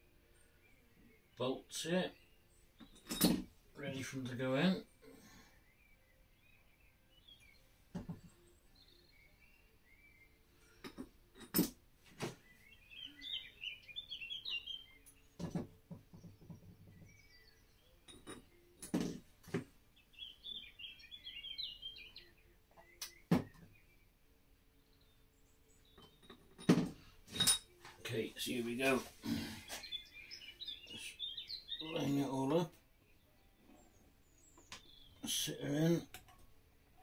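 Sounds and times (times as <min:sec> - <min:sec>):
metallic clinks and knocks: 0:02.8 - 0:03.5, 0:10.8 - 0:11.8, 0:18.0 - 0:19.2, 0:25.9 - 0:27.9
small bird twittering: 0:12.4 - 0:15.4, 0:20.1 - 0:24.0, 0:29.6 - 0:32.2.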